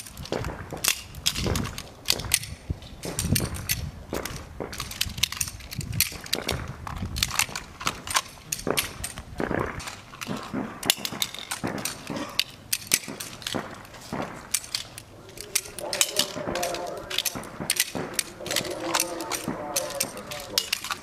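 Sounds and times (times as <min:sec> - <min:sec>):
pistol shots: 0:07.4 - 0:09.6, 0:10.2 - 0:21.0.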